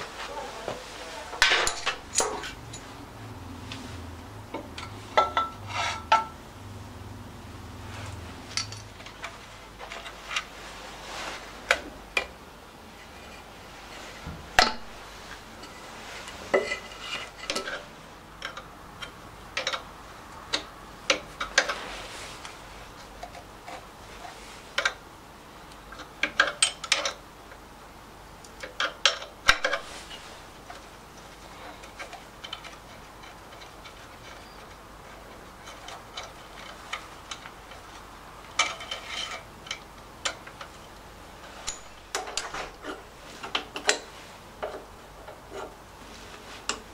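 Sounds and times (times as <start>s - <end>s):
spanner clinking on engine parts: 8.5s - 9.3s, 41.5s - 42.6s.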